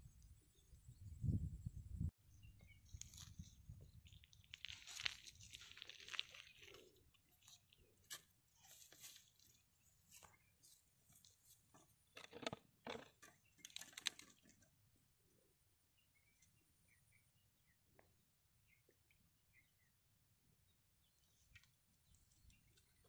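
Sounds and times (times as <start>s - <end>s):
faint bird chirps: 0.0s - 4.6s, 13.2s - 23.0s
rustling and crunching plants: 2.7s - 14.6s.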